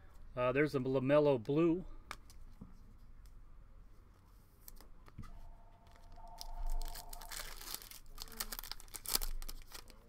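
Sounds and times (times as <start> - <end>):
foil wrapper crinkling and tearing: 6.8 - 10.0.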